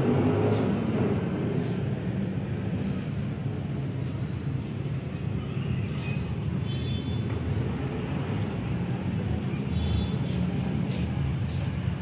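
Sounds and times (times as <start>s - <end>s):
vehicle rumbling in motion: 0.0s - 12.0s.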